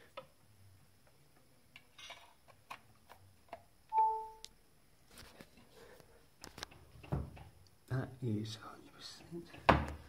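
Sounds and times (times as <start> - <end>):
short electronic beep: 3.9 - 4.4.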